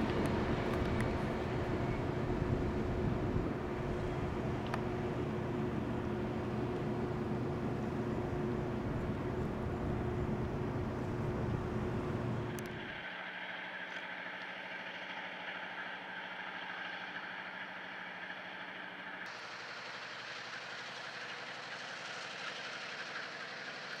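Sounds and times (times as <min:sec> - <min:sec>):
diesel locomotive engine running: 0:00.0 - 0:24.0
hiss: 0:19.3 - 0:24.0.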